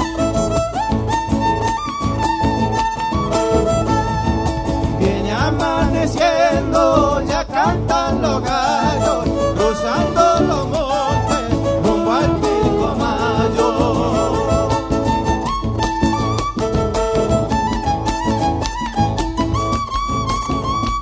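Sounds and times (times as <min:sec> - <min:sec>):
fiddle melody with vibrato: 0:00.0 - 0:21.0
guitar: 0:00.0 - 0:21.0
steady drum beat: 0:03.8 - 0:15.2.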